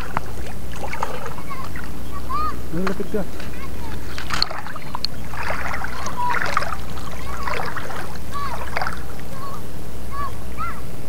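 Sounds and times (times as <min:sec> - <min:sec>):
rocks moved in water: 0:00.0 - 0:02.0, 0:02.8 - 0:09.3
seawater splashing and sloshing: 0:00.0 - 0:10.7
steady low hum: 0:00.0 - 0:11.0.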